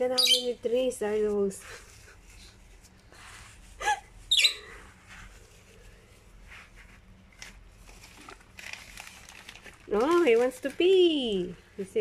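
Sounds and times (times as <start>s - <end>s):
guinea pig squeaking: 0.0s - 0.9s, 4.3s - 4.7s
rustling of wood shavings: 4.6s - 11.5s.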